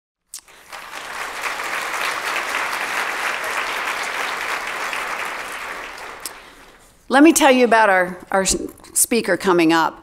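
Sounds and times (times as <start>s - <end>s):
audience applauding: 0.4s - 6.8s.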